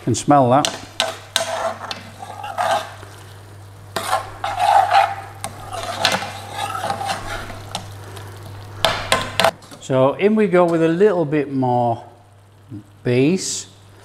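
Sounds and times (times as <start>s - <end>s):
light sizzle: 0.0s - 14.0s
steady low hum: 0.0s - 14.0s
metal spoon scraping a pan: 0.7s - 3.2s, 3.9s - 7.9s.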